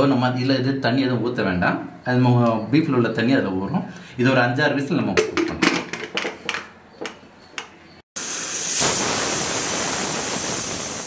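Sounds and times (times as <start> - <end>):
pressure cooker whistle hissing: 8.2 - 11.0.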